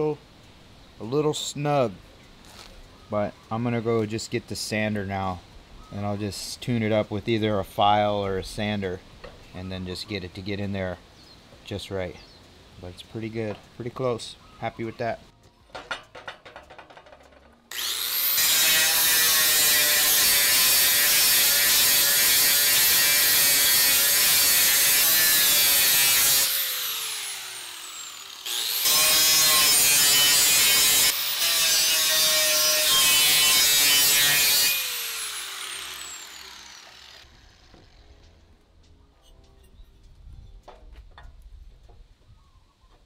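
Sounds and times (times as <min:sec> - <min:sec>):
angle grinder on aluminium: 0:15.8 - 0:38.1.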